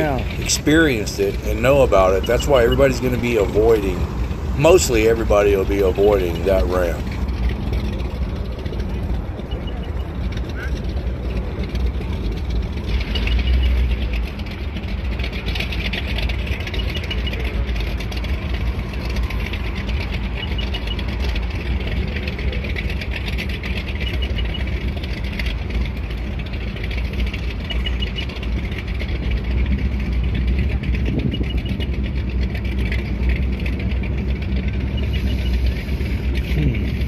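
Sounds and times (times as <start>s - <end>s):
low engine rumble: 0.0s - 37.0s.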